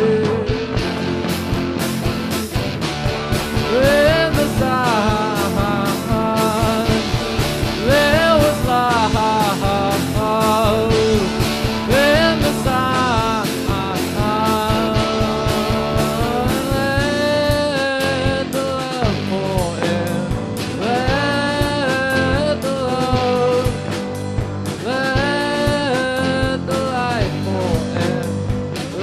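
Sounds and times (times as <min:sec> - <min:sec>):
rock band playing live: 0:00.0 - 0:29.0.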